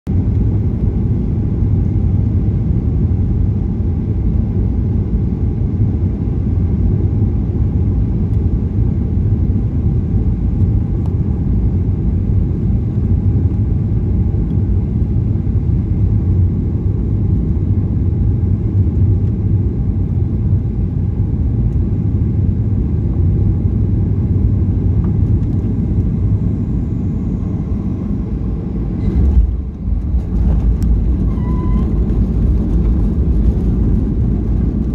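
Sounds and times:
airplane cabin rumble: 0.1s - 34.9s.

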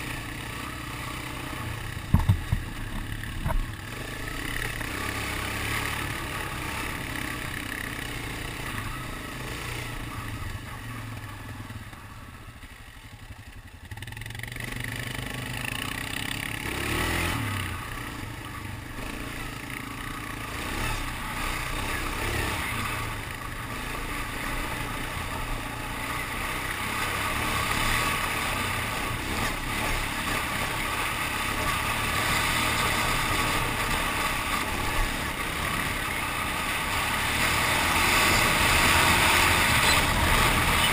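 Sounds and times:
atv engine running: 0.0s - 40.9s
vehicle clattering over rough ground: 2.0s - 4.0s.

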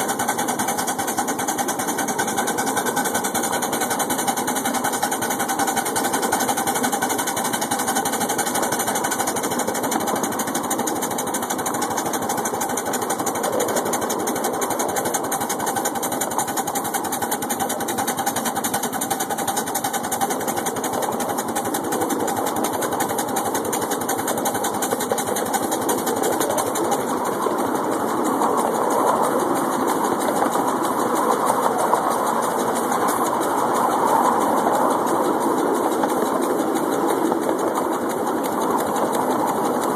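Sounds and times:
steam locomotive clatter: 0.0s - 39.9s.

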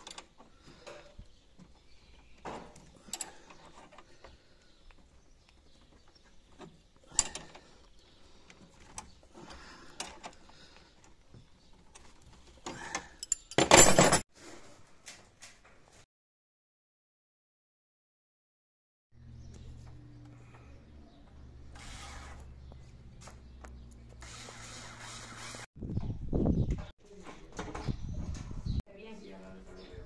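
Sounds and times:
wrenches clinking on metal fittings: 11.9s - 14.2s.

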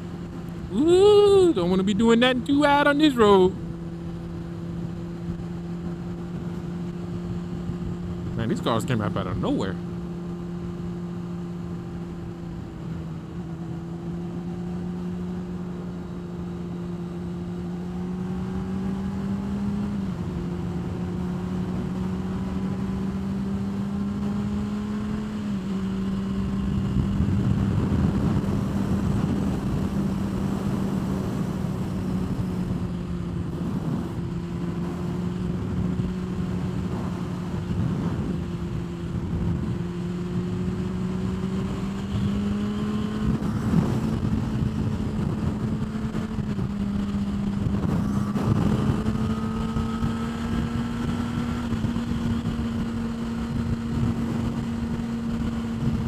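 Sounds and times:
motorcycle engine cruising: 0.0s - 56.0s
wind rush: 31.1s - 41.1s, 42.2s - 51.9s.

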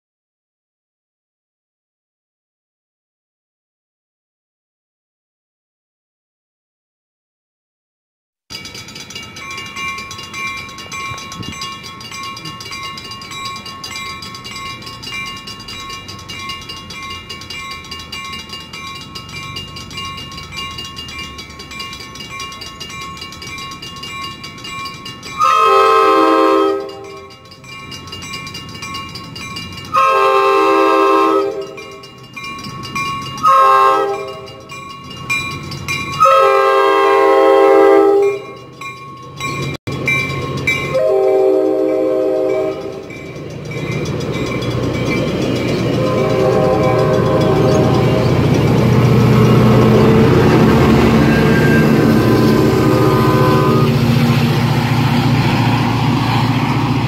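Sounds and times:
crossing bells ringing: 8.5s - 57.0s
train rumble: 8.5s - 57.0s
train horn blasts: 25.4s - 27.3s, 29.9s - 32.0s, 33.4s - 34.6s, 36.2s - 38.4s, 40.8s - 43.2s, 46.0s - 54.6s.

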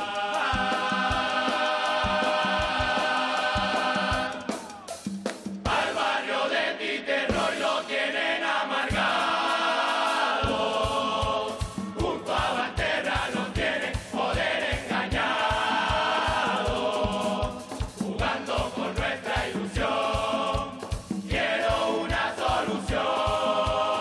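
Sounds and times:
male chorus singing: 0.0s - 5.0s, 5.6s - 24.0s
low drum beat: 10.4s - 24.0s.

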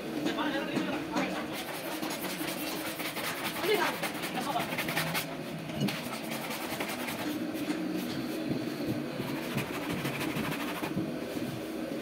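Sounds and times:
cloths rubbing car paint: 1.4s - 8.4s, 9.0s - 11.7s.

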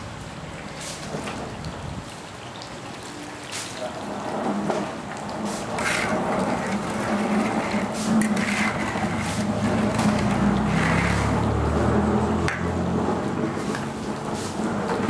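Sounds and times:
metal spatula scraping wok: 5.5s - 11.5s.

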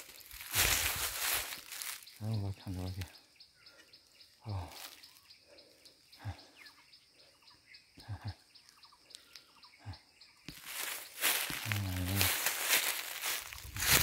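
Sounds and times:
soft footfalls: 10.5s - 14.0s.

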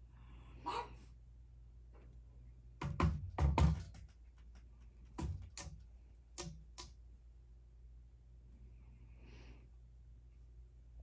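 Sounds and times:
knocks on spinning fan blades: 2.8s - 4.1s.

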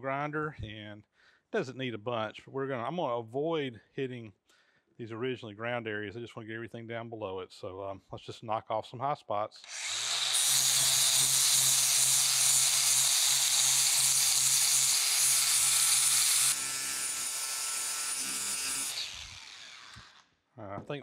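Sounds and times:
angle grinder grinding metal: 9.6s - 20.2s
grinder motor winding down: 9.6s - 20.2s.

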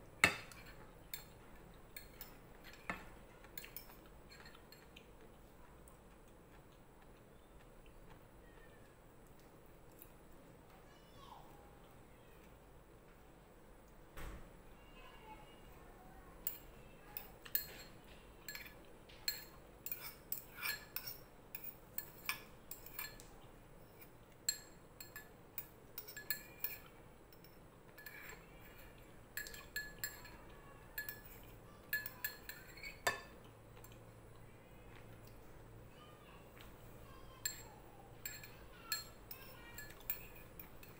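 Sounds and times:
spoon clinking against ceramic bowl: 2.0s - 4.9s, 17.2s - 23.3s, 23.9s - 28.4s, 29.4s - 34.0s, 37.4s - 40.9s.

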